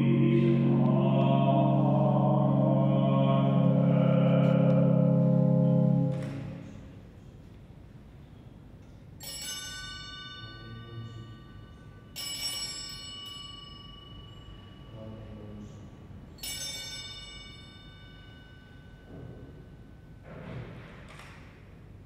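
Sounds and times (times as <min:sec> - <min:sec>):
altar bell ringing: 0:09.2 - 0:15.4, 0:16.2 - 0:20.2.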